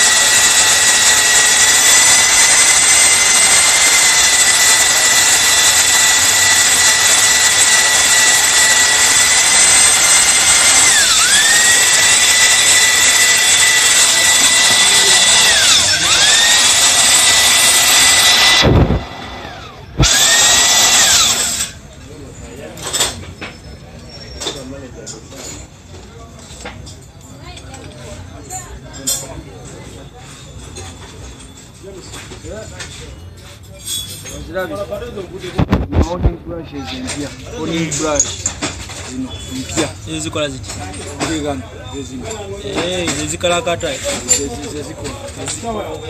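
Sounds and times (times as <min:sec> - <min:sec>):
electric drill honing whine: 0:00.0 - 0:21.8.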